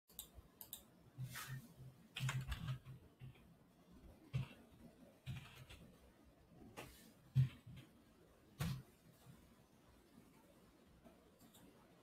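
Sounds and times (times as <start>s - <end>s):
computer keyboard typing: 2.1s - 3.5s, 4.2s - 5.9s.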